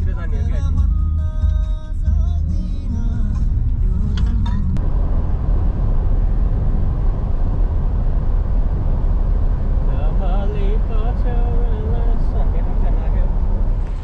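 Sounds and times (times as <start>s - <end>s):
music: 0.0s - 4.8s
car road rumble: 0.0s - 14.0s.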